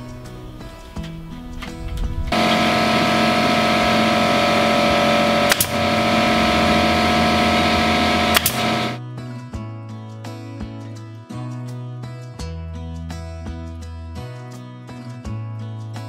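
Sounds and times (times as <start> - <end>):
air compressor humming and hissing: 2.3 - 9.0
pneumatic nailer firing: 2.3 - 9.0.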